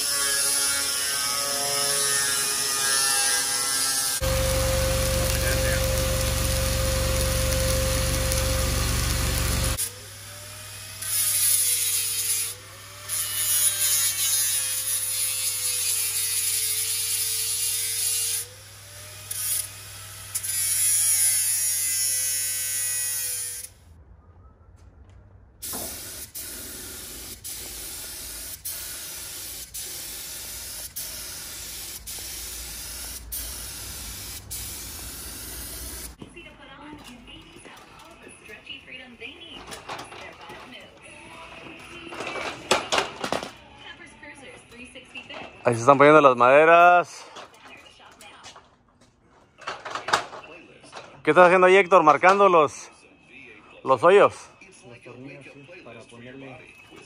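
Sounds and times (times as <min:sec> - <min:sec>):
arc welding buzz: 0:00.0 - 0:23.8, 0:25.6 - 0:36.2
welding crackling sizzle: 0:02.6 - 0:10.0, 0:25.7 - 0:36.2.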